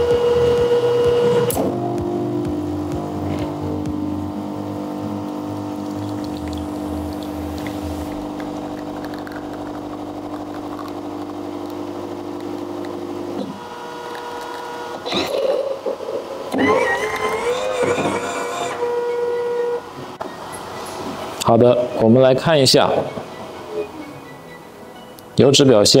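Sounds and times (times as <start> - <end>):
low hum: 0.0 - 13.5
espresso machine pumping: 5.3 - 19.5.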